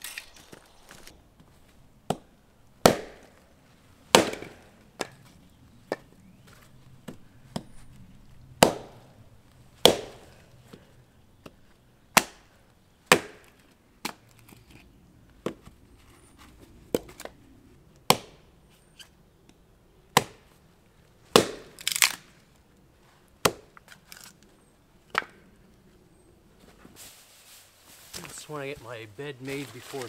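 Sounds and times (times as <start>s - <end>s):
hatchet chopping wood: 2.1s - 3.4s, 4.1s - 5.2s, 8.6s - 9.0s, 9.8s - 10.8s, 12.1s - 12.5s, 13.1s - 14.2s, 18.0s - 18.4s, 20.1s - 20.5s, 21.3s - 22.2s, 23.4s - 23.9s, 25.1s - 25.4s.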